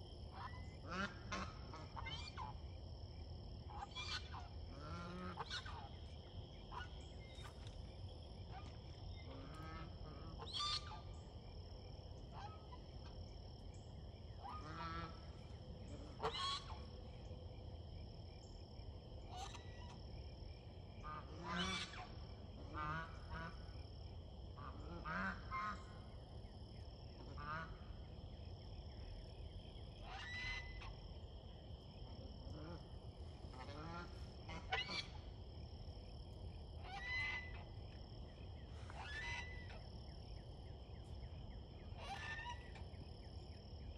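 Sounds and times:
geese honking: 14.4 - 16.8, 21.1 - 23.6, 33.5 - 35.2.

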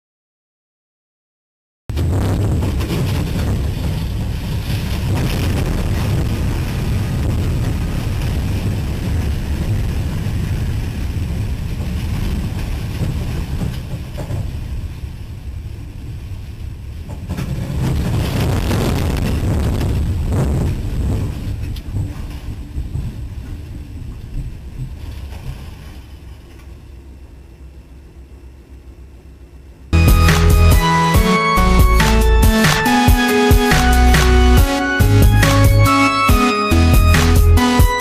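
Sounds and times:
wind buffeting camera: 1.9 - 25.9
train rumbling: 1.9 - 38.0.

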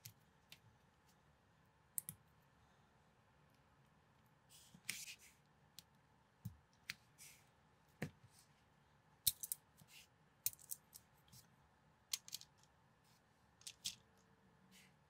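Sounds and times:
plastic bricks clicking together: 9.3 - 9.6, 10.4 - 11.0, 12.1 - 12.7.

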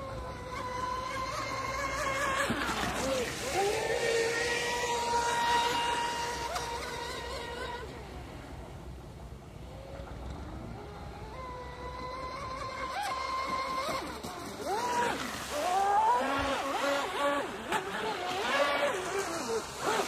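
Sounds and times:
rc boat motor whining: 0.0 - 20.0
boat hull hissing over water: 0.9 - 11.2.

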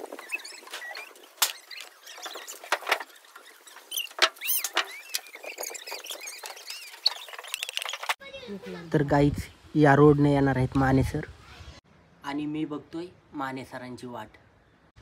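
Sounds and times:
high chirps: 0.0 - 8.2.

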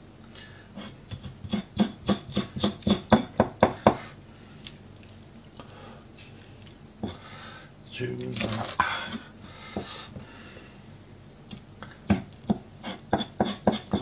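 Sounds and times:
knife chopping on cutting board: 1.1 - 4.0, 12.1 - 14.0.

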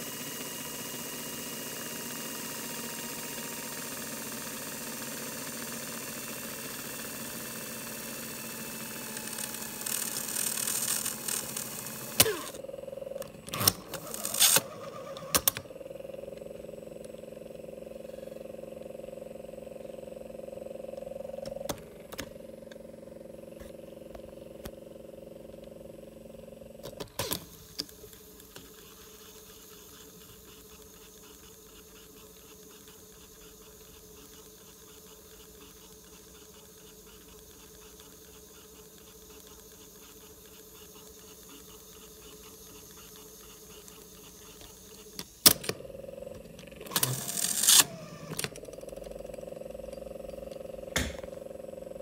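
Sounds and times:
tape drive motor running: 0.0 - 52.0
tape drive clicks: 13.2 - 15.7, 21.4 - 22.8, 26.8 - 28.9, 43.8 - 51.4.

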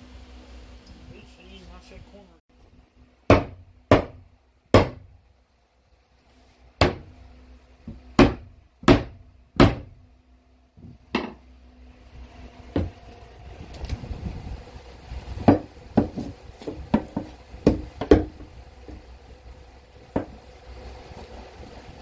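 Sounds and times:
hammer striking plywood: 3.3 - 5.1, 6.8 - 7.1, 7.8 - 9.9, 15.4 - 19.0.

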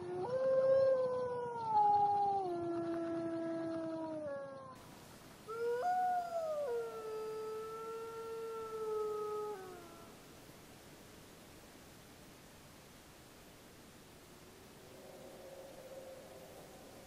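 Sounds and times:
wolf howling: 0.0 - 4.8, 5.5 - 10.2.

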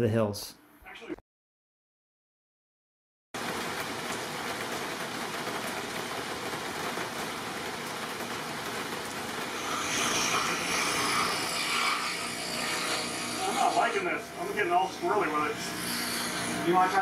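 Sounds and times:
palm sander sanding wood: 9.9 - 17.0.

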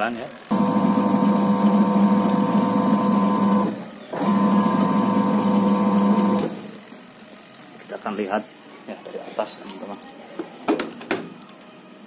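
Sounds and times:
washing machine motor humming: 0.1 - 6.8.

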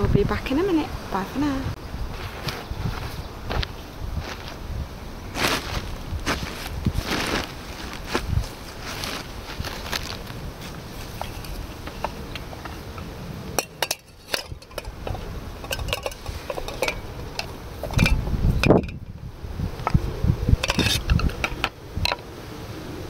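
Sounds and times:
light clinks and knocks: 11.1 - 19.1.

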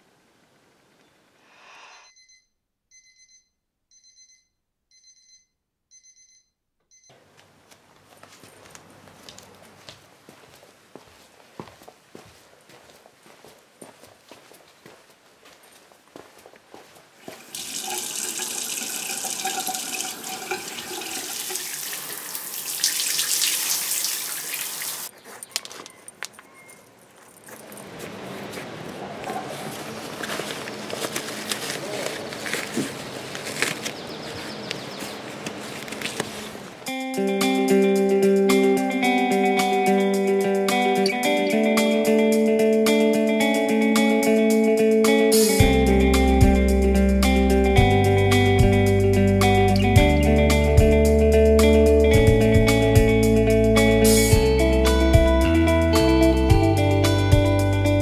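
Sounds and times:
electronic alarm beeping: 2.0 - 7.1
shower water spraying: 17.4 - 25.1.

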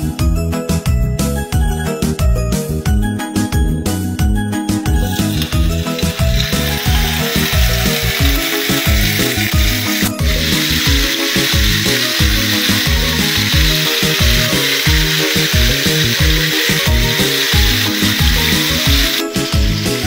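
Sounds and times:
background music with beat: 0.0 - 20.0
fish sizzling in frying pan: 4.9 - 20.0.

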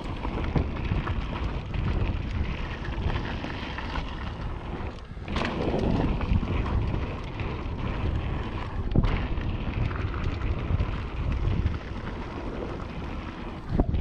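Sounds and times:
bike tyre rumble on dirt: 0.0 - 14.0
wind rushing over microphone: 0.0 - 14.0.

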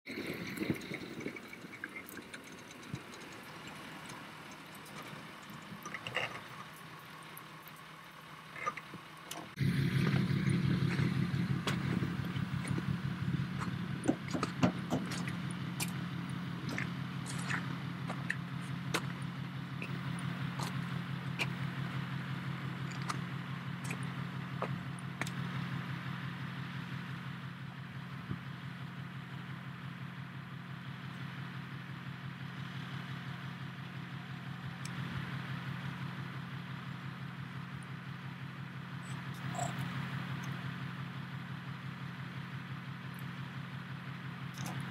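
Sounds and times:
truck engine idling: 0.0 - 44.9
sharp clicks and ticks: 0.2 - 7.9.

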